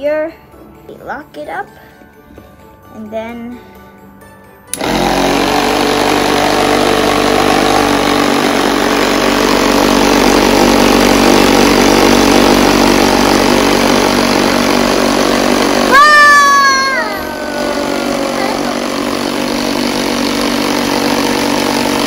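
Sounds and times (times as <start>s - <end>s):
small motor humming: 4.8s - 22.0s.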